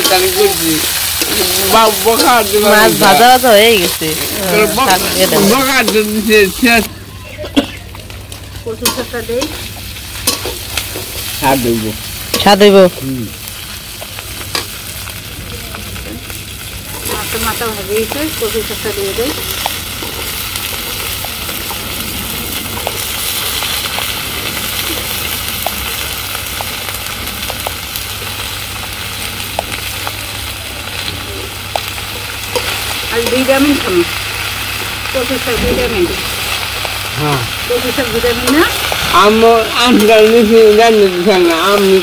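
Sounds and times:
food sizzling in pan: 0.0 - 6.9, 7.8 - 42.0
person speaking: 0.0 - 7.8.

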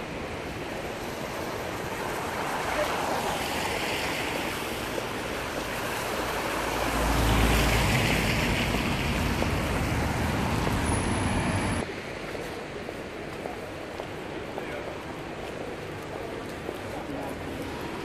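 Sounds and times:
tyres hissing on wet road: 0.0 - 12.2
car passing close: 5.5 - 11.8.

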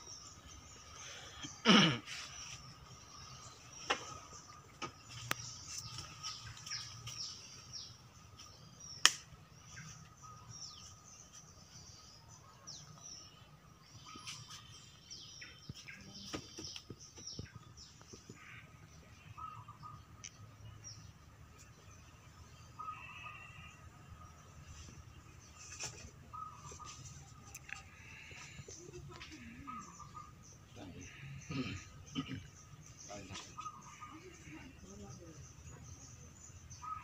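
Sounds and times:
small birds chirping: 0.0 - 37.0
sharp clicks: 9.0 - 9.3.

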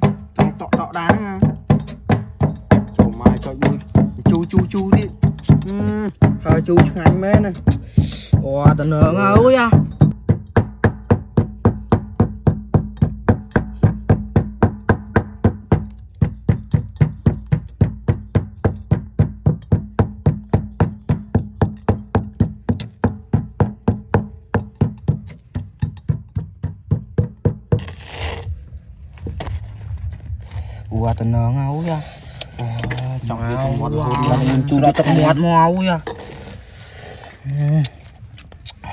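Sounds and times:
fast knocking beat: 0.0 - 27.8.

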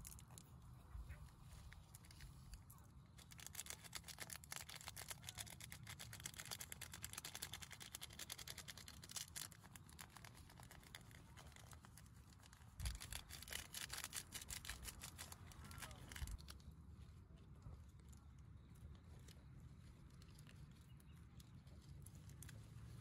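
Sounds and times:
crisp topping crackling: 1.7 - 16.6.

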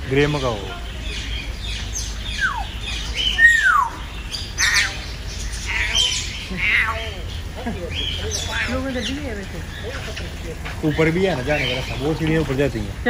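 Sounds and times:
parrot squawking: 0.3 - 12.6
parrot whistling: 1.9 - 7.3.

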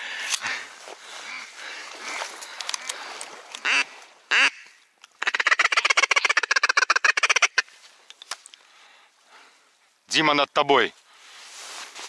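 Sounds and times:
duck quacking: 3.6 - 7.6.

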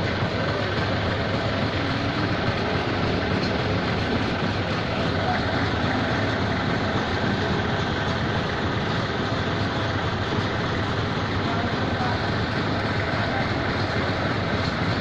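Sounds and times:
diesel engine droning: 0.0 - 15.0.

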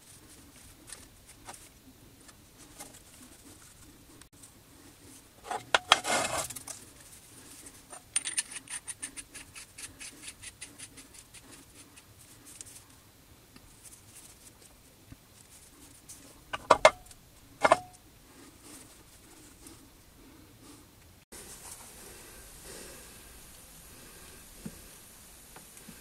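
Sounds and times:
metal clicks and clatter: 7.9 - 9.7.

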